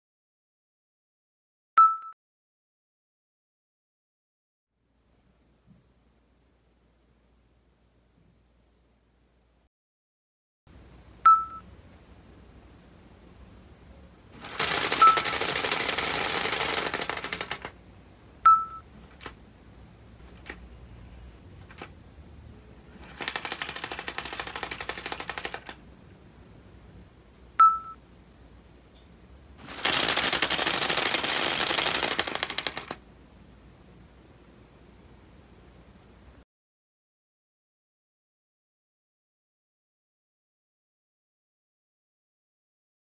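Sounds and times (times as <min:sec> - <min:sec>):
flaps clattering rapidly: 0:14.4 - 0:17.8, 0:23.0 - 0:25.8, 0:29.6 - 0:33.0.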